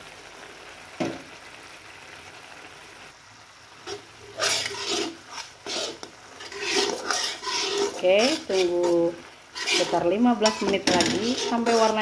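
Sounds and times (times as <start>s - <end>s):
sauce sizzling in wok: 0.0s - 12.0s
steel spatula scraping wok: 3.8s - 12.0s.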